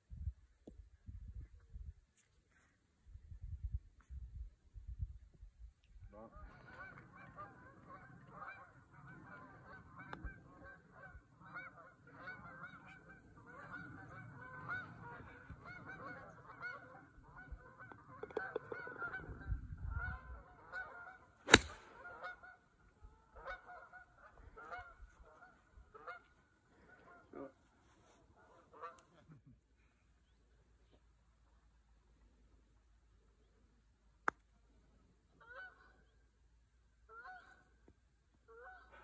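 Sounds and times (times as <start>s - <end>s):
geese honking: 6.2s - 29.2s, 35.4s - 36.1s, 37.1s - 37.7s, 38.5s - 39.0s
sharp crack: 21.4s - 22.2s.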